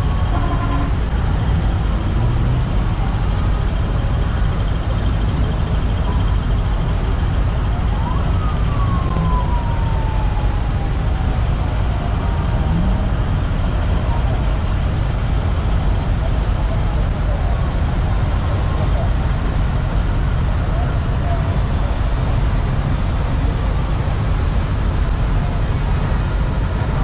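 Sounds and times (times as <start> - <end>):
diesel truck engines idling: 0.0 - 27.0
siren-like gliding tone: 7.6 - 13.2.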